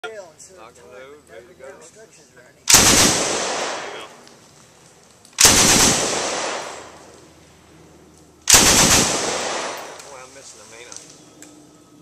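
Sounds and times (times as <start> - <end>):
machine gun bursts: 2.7 - 4.0, 5.4 - 6.8, 8.5 - 10.0.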